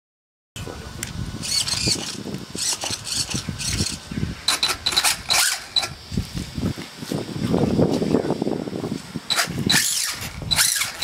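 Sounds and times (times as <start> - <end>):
toy car motor whirring: 1.4 - 6.3, 9.3 - 11.0.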